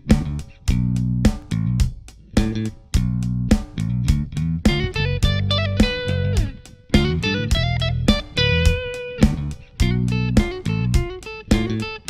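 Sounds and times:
electric guitar riff: 4.7s - 12.0s.

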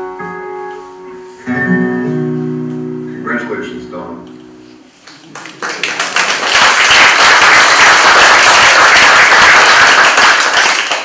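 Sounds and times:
acoustic guitar notes: 0.0s - 5.0s
audience applauding: 5.0s - 11.0s.

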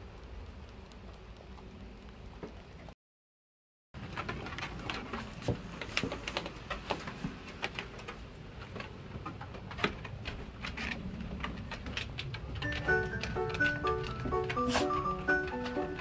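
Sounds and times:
dog claws clicking on wooden deck: 4.0s - 16.0s.

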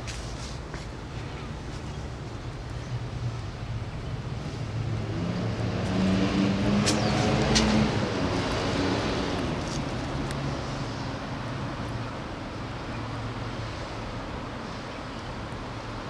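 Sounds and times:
vehicle driving past: 4.2s - 11.5s.

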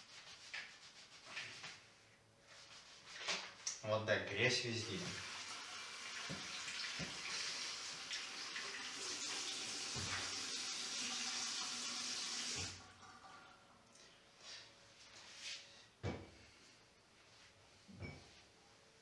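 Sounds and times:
tap water running into basin: 4.9s - 13.7s.

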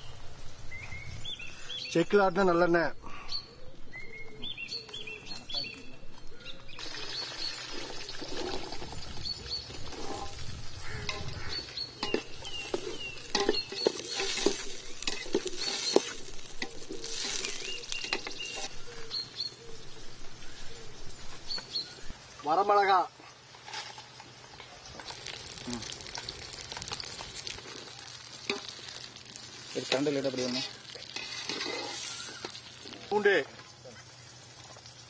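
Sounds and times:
birds chirping: 0.0s - 26.0s, 26.7s - 35.0s
shallots sizzling in hot oil: 6.8s - 22.8s, 23.5s - 35.0s
metal ladle scraping a pot: 7.6s - 9.0s, 9.7s - 18.8s, 29.8s - 32.7s.

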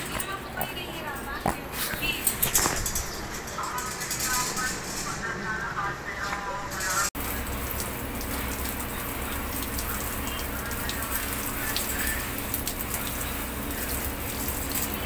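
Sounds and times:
shower spraying water: 6.9s - 15.0s
water drops ticking: 7.2s - 15.0s.

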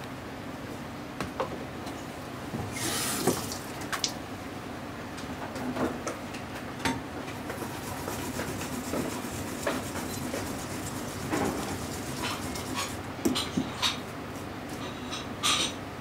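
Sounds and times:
running water: 2.8s - 4.2s, 7.9s - 13.0s
utensils and dishes clicking: 9.6s - 14.0s.

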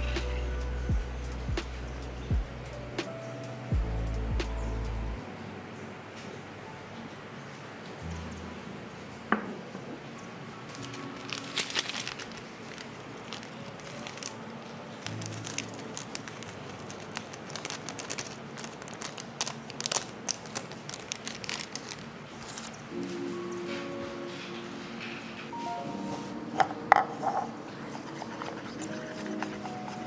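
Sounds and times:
background music: 0.0s - 20.1s, 22.5s - 30.0s
plastic sachet crinkling: 10.7s - 23.1s
dried flakes shaken into bowl: 15.0s - 22.8s.

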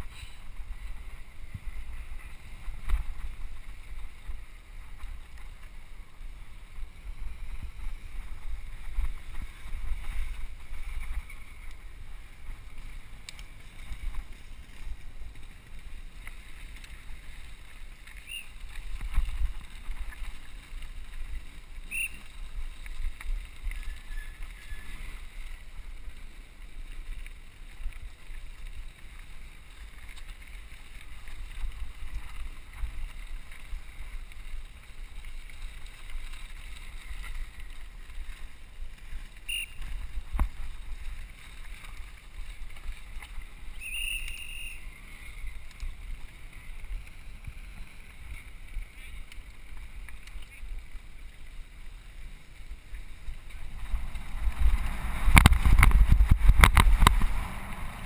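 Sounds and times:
tyre noise on gravel: 0.0s - 58.0s
wind buffeting microphone: 53.1s - 58.0s.

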